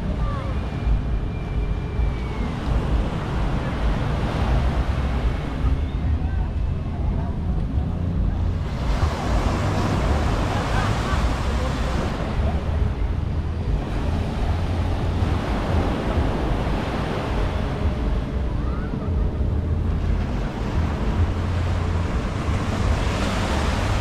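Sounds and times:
wind rumbling on microphone: 0.0 - 24.0
surf washing onto beach: 8.2 - 19.2, 19.9 - 24.0.

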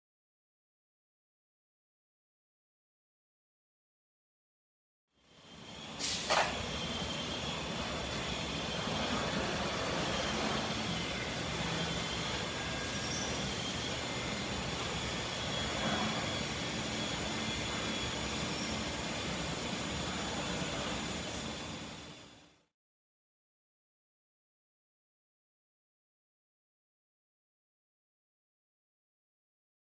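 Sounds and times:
cnc router whining and humming: 5.2 - 22.6
brief high hisses: 6.0 - 6.6, 18.3 - 18.9.

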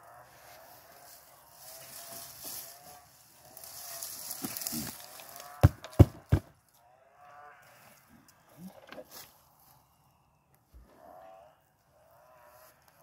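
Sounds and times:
dry plant matter and soil rustling: 0.0 - 6.0.

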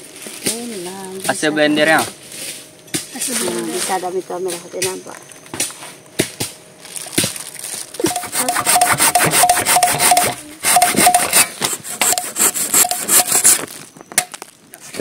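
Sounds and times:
scattered knocks: 8.1 - 11.4
hand saw cutting log: 8.1 - 13.6.

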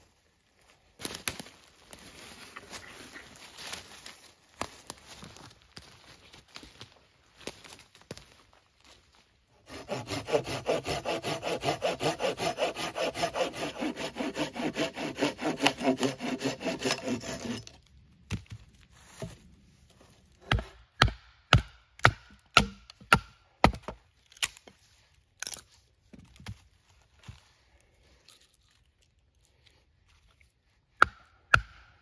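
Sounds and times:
hand saw cutting a stick: 9.6 - 17.8, 20.4 - 21.1
knife chopping wood: 20.4 - 24.6, 31.0 - 32.0.

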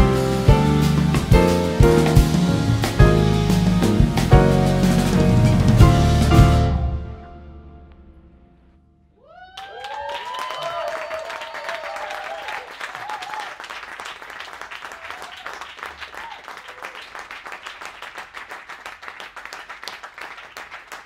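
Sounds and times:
whoops and cheers: 9.2 - 13.7, 14.8 - 17.2
audience applauding: 9.3 - 21.0.

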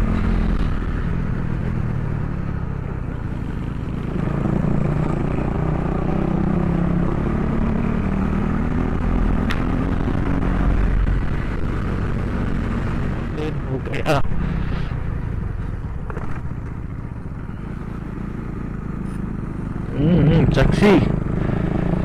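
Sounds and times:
motorcycle engine running: 0.0 - 22.0
wind rushing over microphone: 6.0 - 15.2.

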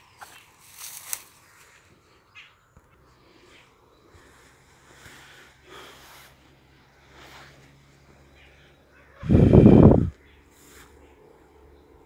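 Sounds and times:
footsteps in dry grass: 0.0 - 2.5.

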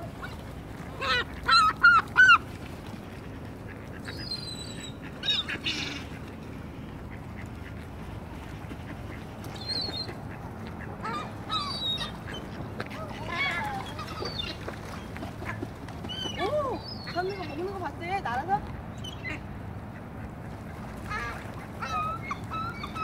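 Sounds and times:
water birds calling: 0.0 - 23.0.

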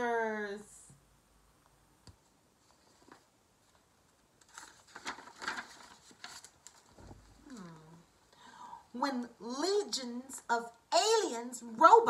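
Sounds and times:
paper pages turning: 2.6 - 8.0.

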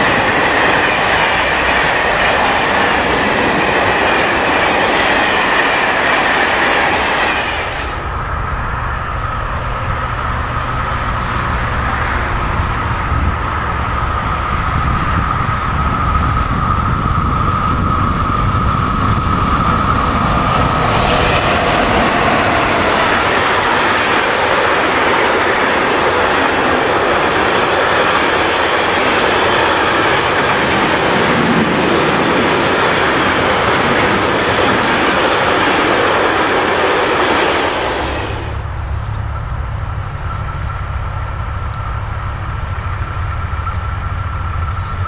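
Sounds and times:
steady high whine: 0.0 - 45.0
train wheels on rails: 0.0 - 45.0.

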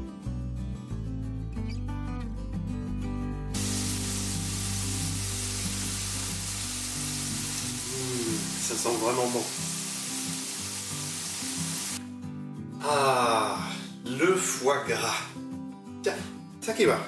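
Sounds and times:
vegetables sizzling in a frying pan: 3.6 - 12.0.

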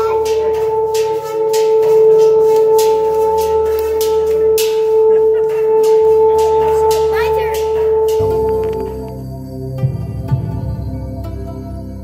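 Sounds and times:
hand rasping on gong: 0.0 - 8.9
gong humming tone: 0.0 - 9.2.

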